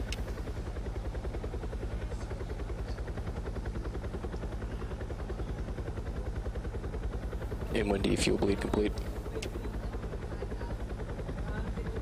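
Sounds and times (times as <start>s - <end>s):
throbbing mechanical hum: 0.0s - 12.0s.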